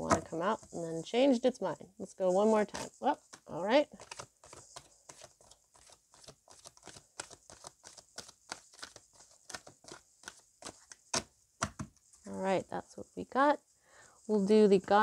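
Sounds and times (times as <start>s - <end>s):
cards being shuffled: 2.4s - 12.0s.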